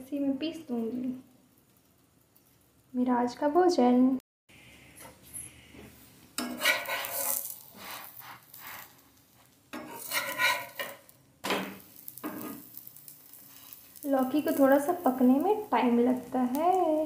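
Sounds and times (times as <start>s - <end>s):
faint sizzle: 0.0s - 17.0s
metal spatula scraping iron pan: 5.0s - 9.0s, 9.7s - 12.8s.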